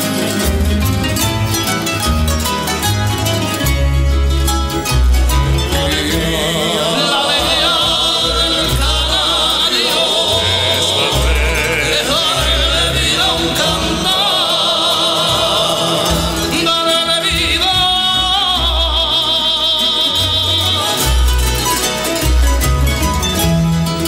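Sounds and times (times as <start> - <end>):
low bass line: 0.0 - 14.4
person singing wavering notes: 5.3 - 21.2.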